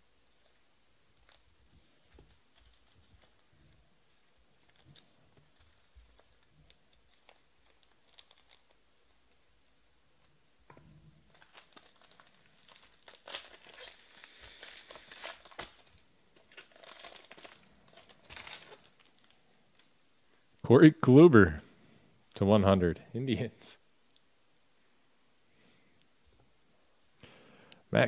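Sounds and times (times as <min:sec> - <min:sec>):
foil pack tearing and crinkling: 0:04.6 - 0:08.8, 0:11.3 - 0:19.4.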